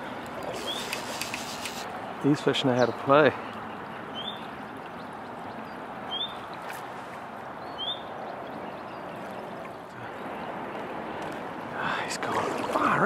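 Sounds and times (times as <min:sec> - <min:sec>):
river running over stones: 0:00.0 - 0:03.3, 0:09.7 - 0:13.0.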